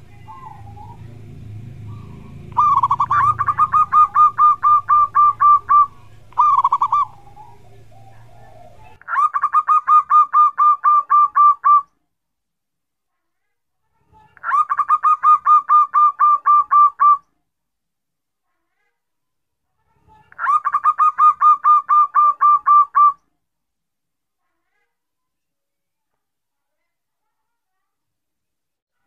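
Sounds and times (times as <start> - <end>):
dove cooing: 0.0 - 11.9, 14.5 - 17.2, 20.4 - 23.2.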